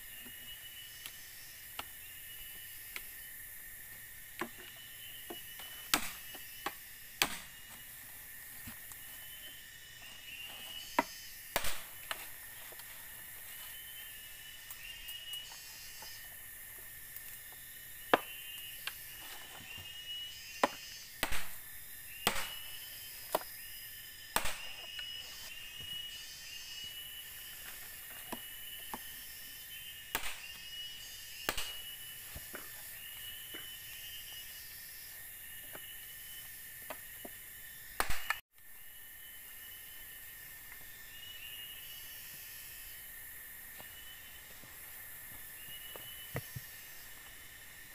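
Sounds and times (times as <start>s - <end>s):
machete chopping bamboo: 5.3s - 7.8s, 11.0s - 12.3s, 20.6s - 21.6s, 22.2s - 23.5s, 24.4s - 24.9s, 30.1s - 30.5s, 31.5s - 32.0s, 38.0s - 38.4s.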